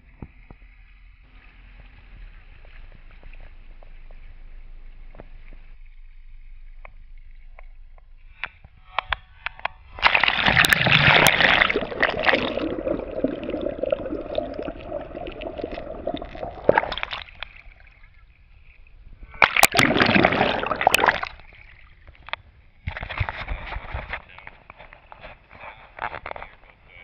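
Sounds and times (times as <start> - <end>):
muffled underwater hum: 0.0 - 20.9
water gushing and gurgling: 9.9 - 23.3
water lapping and splashing: 9.9 - 23.4.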